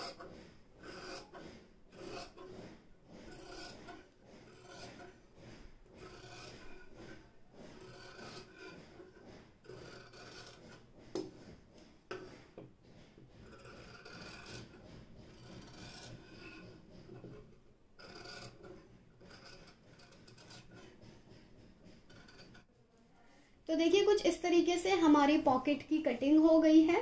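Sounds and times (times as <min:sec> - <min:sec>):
scissors snipping fabric: 0:00.8 - 0:01.3, 0:01.9 - 0:02.5, 0:03.2 - 0:05.2, 0:05.9 - 0:11.3.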